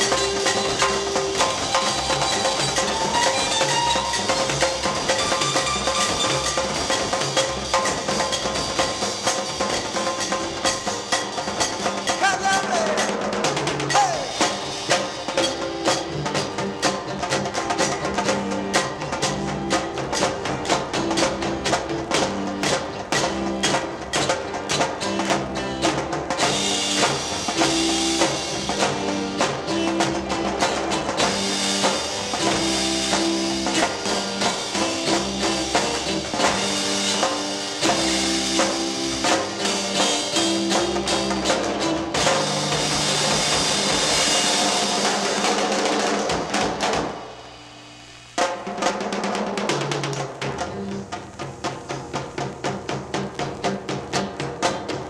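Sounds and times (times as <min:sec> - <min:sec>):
bass guitar: 0:00.0 - 0:47.2
cymbals: 0:00.0 - 0:55.0
drum kit: 0:00.0 - 0:55.0
rock band playing: 0:00.0 - 0:55.0.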